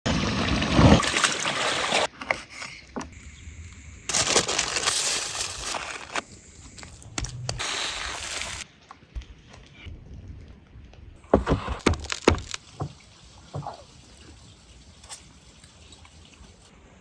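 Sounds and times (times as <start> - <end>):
parchment paper crinkling: 4.1 - 7.4.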